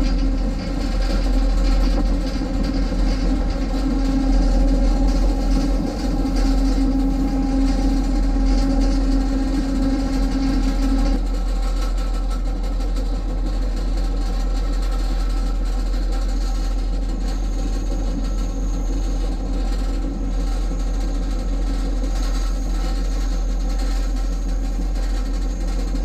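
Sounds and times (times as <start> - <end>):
steady tone: 0.0 - 11.3
train rumbling on track: 0.0 - 26.0.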